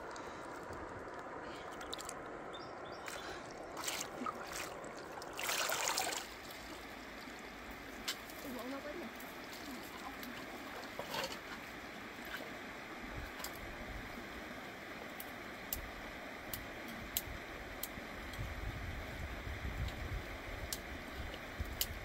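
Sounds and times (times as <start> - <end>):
stream running over rocks: 0.0 - 22.0
water pouring from basket: 1.6 - 2.2, 3.1 - 7.3
wind rumble on microphone: 17.1 - 22.0.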